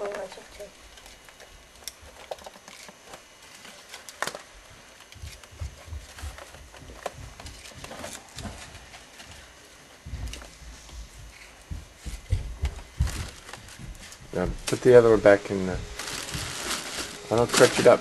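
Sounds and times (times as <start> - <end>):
coffee filters being handled: 12.9 - 18.0.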